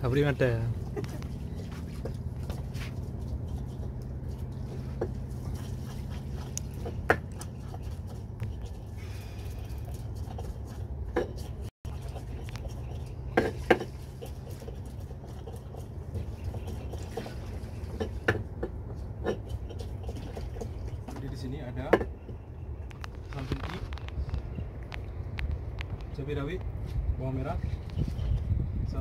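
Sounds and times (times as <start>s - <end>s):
steady low hum: 0.0s - 29.0s
pestle grinding in mortar: 0.7s - 21.3s.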